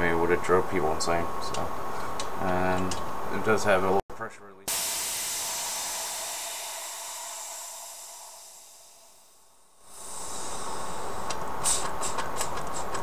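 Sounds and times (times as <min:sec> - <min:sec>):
compressor motor ticking: 0:04.7 - 0:11.5
compressed air hissing: 0:04.7 - 0:13.0.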